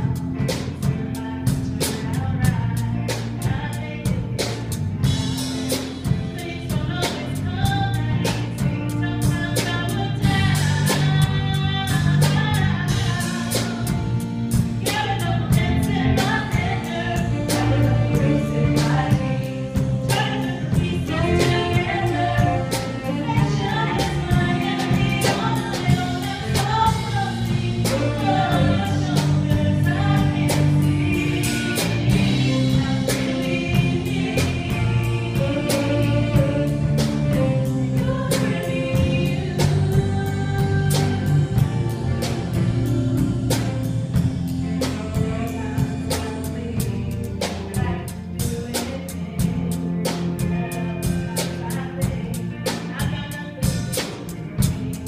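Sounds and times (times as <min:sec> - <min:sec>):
band playing upbeat worship song: 0:00.0 - 0:55.0
bass: 0:00.0 - 0:55.0
steady drum beat: 0:00.0 - 0:55.0
person singing: 0:14.8 - 0:55.0.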